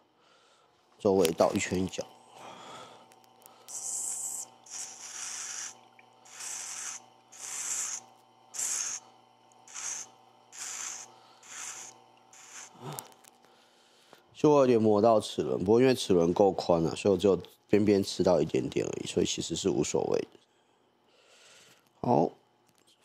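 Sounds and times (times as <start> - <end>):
grinder motor hum: 3.7 - 13.2.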